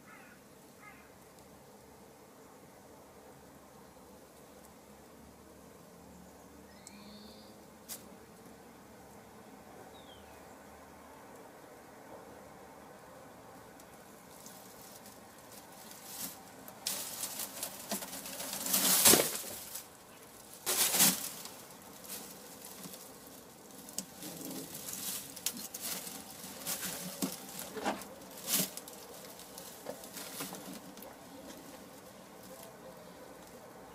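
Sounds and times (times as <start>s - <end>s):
hen scratching in straw: 14.2s - 33.7s.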